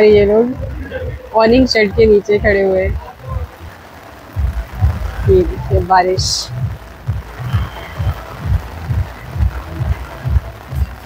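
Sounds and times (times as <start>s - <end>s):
bass thumps of music beat: 0.0s - 3.7s, 4.3s - 11.0s
heavy rain hissing: 0.0s - 11.0s.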